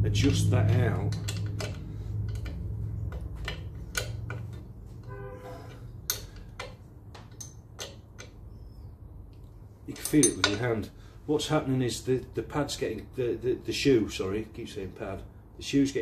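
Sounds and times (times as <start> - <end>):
spanner metallic clicks: 0.1 - 8.6.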